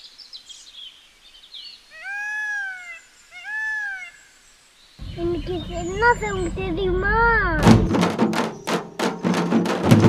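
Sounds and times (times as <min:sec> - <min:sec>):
faint bird chirps: 0:00.0 - 0:07.2
animal calling: 0:01.9 - 0:04.3.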